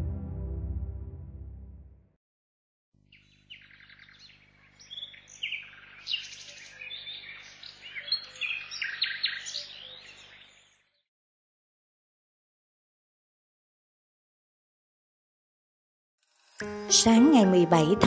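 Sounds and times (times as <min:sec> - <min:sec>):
small birds chirping: 0:03.0 - 0:11.0.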